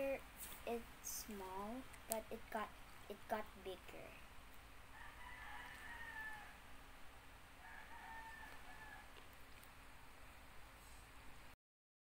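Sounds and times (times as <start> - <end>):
rooster crowing: 4.9 - 6.7, 7.6 - 9.2.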